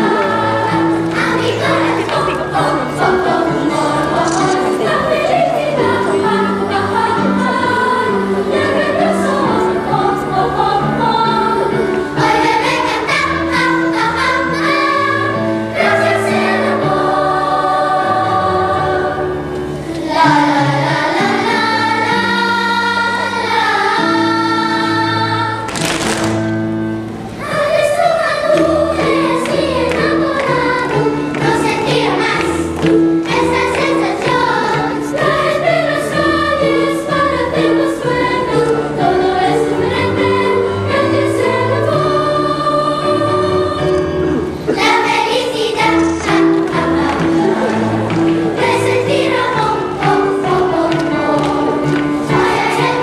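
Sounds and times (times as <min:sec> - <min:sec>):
children's choir singing: 0:00.0 - 0:53.0
instrumental accompaniment: 0:00.0 - 0:53.0.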